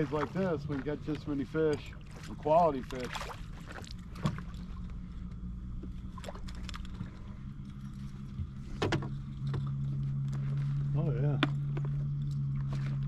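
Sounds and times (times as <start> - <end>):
clicks and knocks in boat: 0.0 - 5.0, 8.4 - 9.8
small boat motor humming: 0.0 - 13.0.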